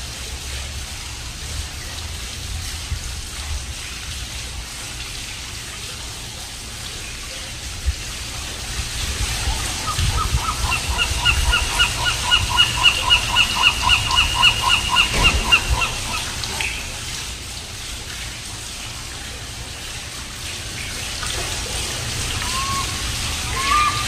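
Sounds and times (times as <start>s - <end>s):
fountain splashing: 0.0s - 24.0s
gull yelping call: 9.5s - 16.8s, 22.4s - 24.0s.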